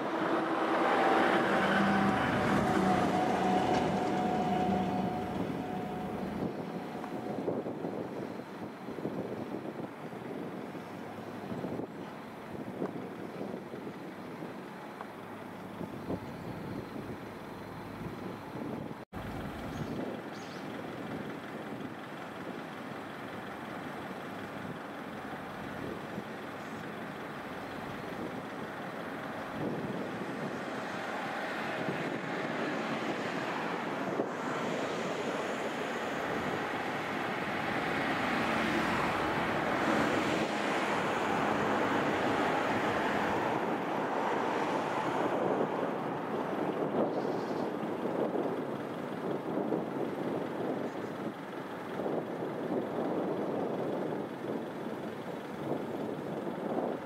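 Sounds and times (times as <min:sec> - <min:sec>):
bow wave and wake rushing: 0:00.0 - 0:08.4, 0:27.3 - 0:47.0
boat engine humming: 0:00.0 - 0:57.0.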